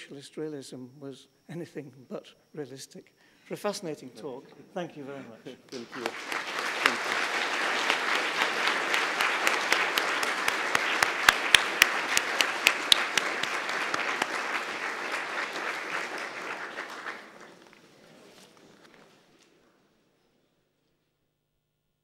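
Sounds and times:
audience applauding: 0:05.7 - 0:18.0.

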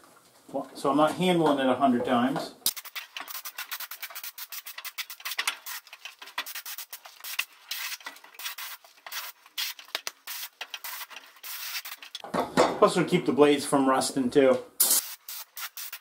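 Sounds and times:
spray gun hissing bursts: 0:02.7 - 0:12.1, 0:14.8 - 0:16.0.

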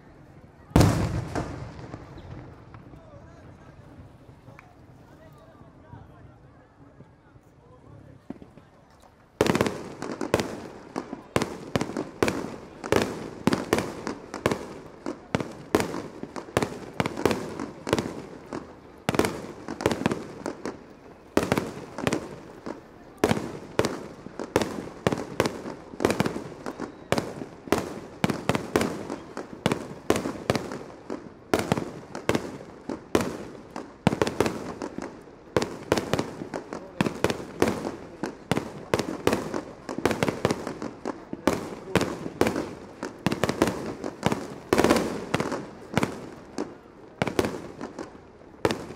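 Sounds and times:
fireworks launching and bursting: 0:00.7 - 0:04.9, 0:09.4 - 0:48.9.

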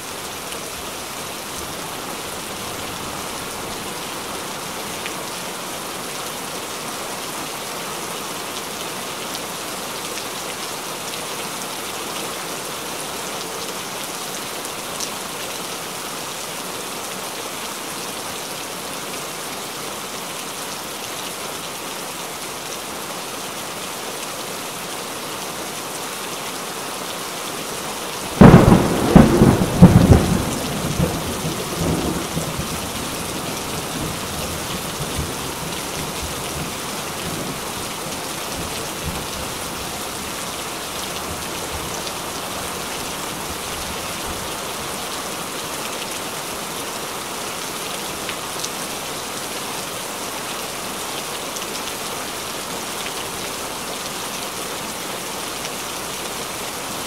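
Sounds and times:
rain falling on water: 0:00.0 - 0:57.0
thunder clap: 0:28.4 - 0:31.2.

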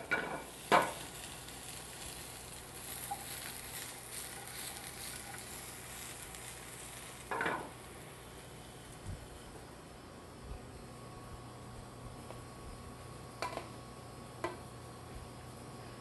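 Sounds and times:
mushrooms sizzling in frying pan: 0:00.0 - 0:10.0.

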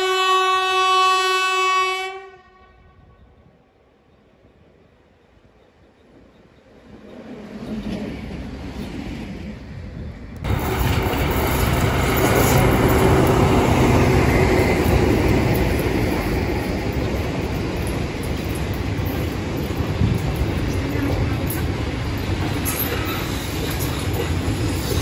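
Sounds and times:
diesel locomotive engine: 0:00.0 - 0:25.0
train wheels rolling: 0:05.6 - 0:25.0
locomotive rumble: 0:10.1 - 0:25.0.

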